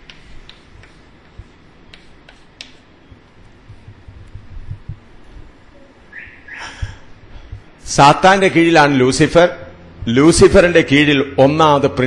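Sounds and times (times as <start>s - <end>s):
chalk tapping on a blackboard: 0.0s - 4.4s.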